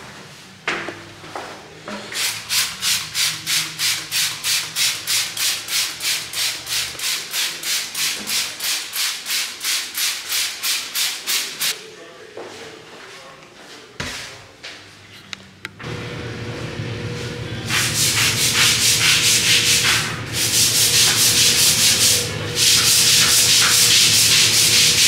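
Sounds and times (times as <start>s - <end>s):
brisk scrubbing strokes: 17.7s - 25.0s.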